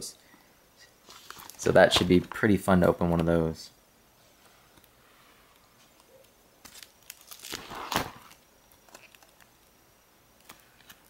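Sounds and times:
plastic pages crinkling: 0:01.0 - 0:02.4, 0:06.6 - 0:09.6.

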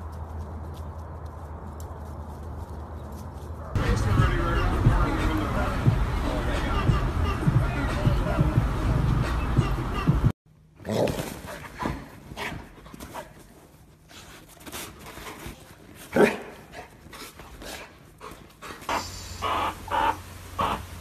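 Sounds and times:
dog panting and snuffling: 0:11.3 - 0:19.3
short repeated calls: 0:18.9 - 0:21.0.

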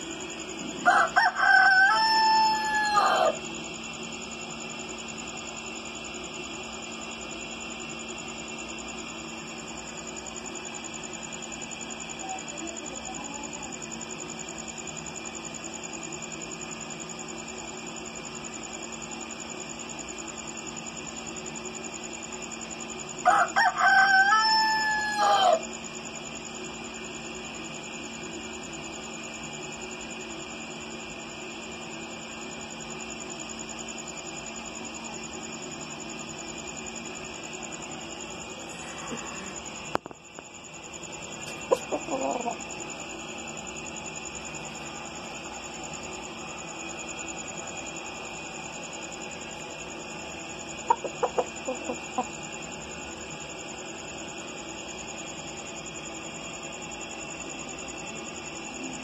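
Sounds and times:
steady hum with high whine: 0:00.0 - 0:59.0
rooster crowing: 0:00.6 - 0:03.5, 0:23.2 - 0:25.7, 0:41.7 - 0:42.6, 0:50.9 - 0:52.4.

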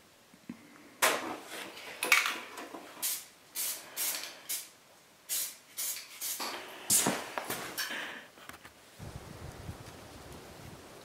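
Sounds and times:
spray paint can hissing: 0:03.0 - 0:04.7, 0:05.3 - 0:07.2.

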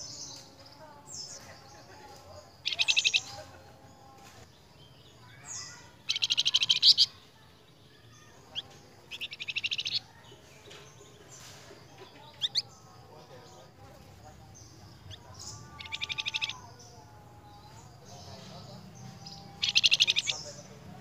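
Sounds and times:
songbird trilling and whistling: 0:02.6 - 0:03.5, 0:04.8 - 0:07.2, 0:08.1 - 0:11.1, 0:12.3 - 0:12.8, 0:14.6 - 0:20.7.

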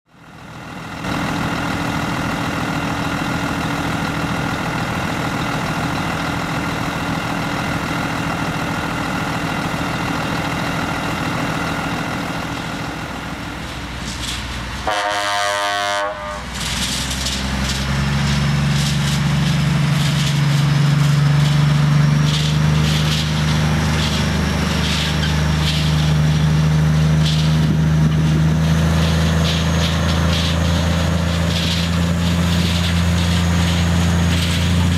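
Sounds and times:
truck engine running: 0:00.1 - 0:34.9
truck horn blast: 0:14.8 - 0:16.6.

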